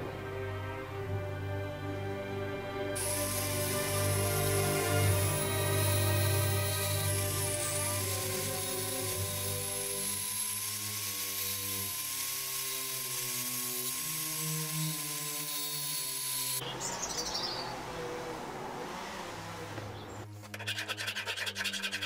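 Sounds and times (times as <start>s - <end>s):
background music: 0.0s - 11.5s
angle grinder grinding steel: 3.0s - 16.8s, 20.4s - 22.0s.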